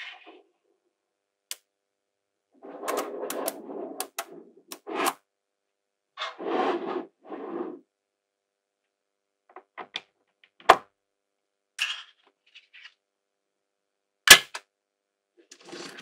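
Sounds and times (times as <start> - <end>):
magnetic balls clicking and rattling: 2.8 - 4.9.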